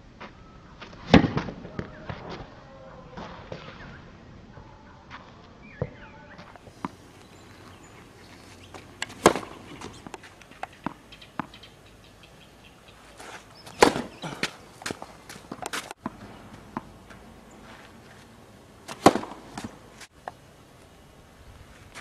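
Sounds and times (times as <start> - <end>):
tennis ball bouncing on clay: 5.8 - 11.6, 13.2 - 17.8, 18.9 - 19.8
tennis ball struck by rackets: 8.6 - 11.6, 13.6 - 17.8, 18.9 - 20.1.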